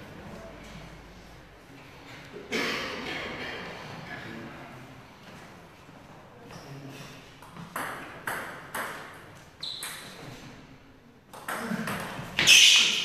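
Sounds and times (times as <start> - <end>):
table tennis ball hits: 7.4 - 9.2.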